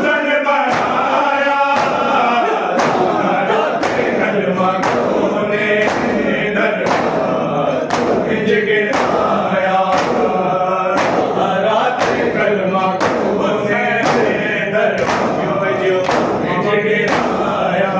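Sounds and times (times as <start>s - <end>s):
men chanting in unison: 0.0s - 17.9s
hand slaps on chest: 5.8s - 6.2s, 7.9s - 8.2s, 9.9s - 10.3s, 15.0s - 15.4s, 16.0s - 16.4s.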